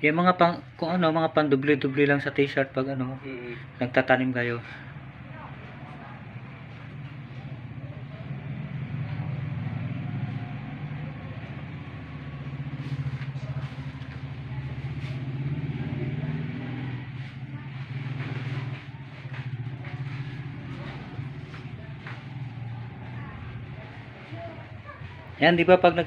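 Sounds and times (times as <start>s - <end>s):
engine running: 0.6s - 26.0s.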